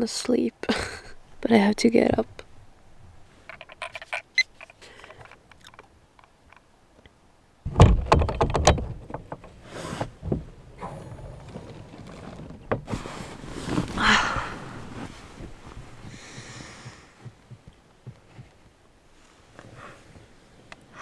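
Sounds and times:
knocks: 7.7 - 9.4
rustling and handling noises: 11.4 - 20.7.

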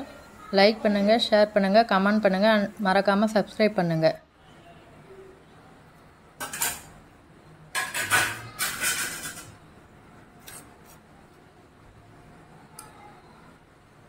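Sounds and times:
steel dishes and ladle clattering: 6.4 - 7.0, 7.7 - 9.6.

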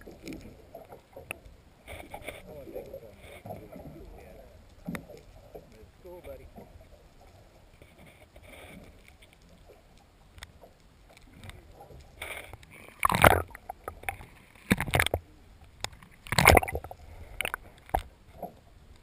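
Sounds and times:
muffled underwater water sloshing: 0.0 - 19.0
small clicks: 7.2 - 19.0.

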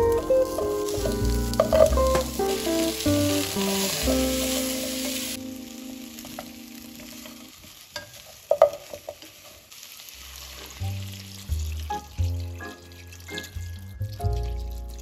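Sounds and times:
background music: 0.0 - 7.3, 10.9 - 15.0
vegetables sizzling in a frying pan: 0.0 - 14.9
wooden spatula scraping a pan: 10.2 - 11.0.

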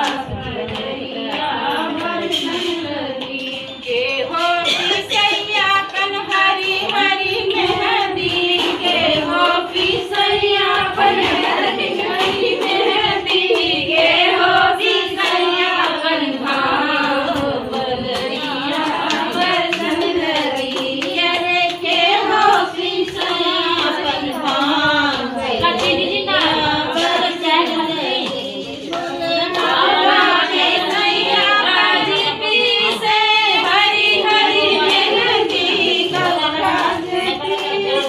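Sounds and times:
rhythmic hand-clapping: 0.0 - 38.0
women singing folk song: 0.0 - 38.0.

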